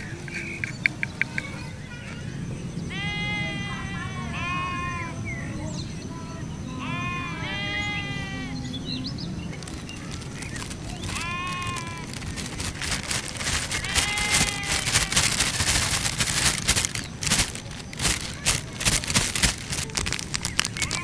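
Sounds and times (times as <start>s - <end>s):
animal bleating: 2.9s - 5.2s, 6.7s - 8.8s, 9.6s - 15.4s
sharp clicks and crackles: 9.5s - 21.0s.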